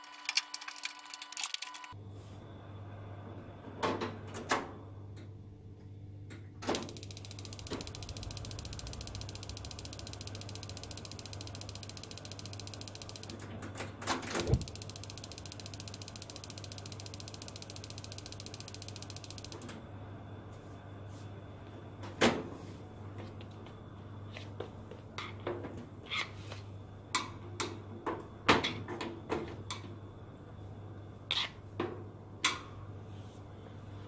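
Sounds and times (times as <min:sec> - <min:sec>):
steady low hum: 0:05.0 - 0:25.2
heater clicks: 0:06.6 - 0:19.8
rapid mechanical ticking: 0:06.8 - 0:13.5, 0:14.3 - 0:19.7.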